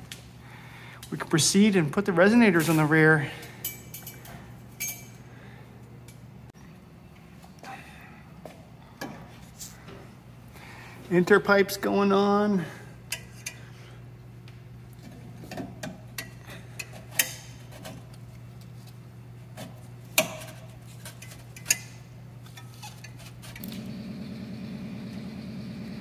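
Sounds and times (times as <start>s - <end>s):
steady low hum: 0.0s - 26.0s
metal exhaust pipes clinking: 3.4s - 5.2s.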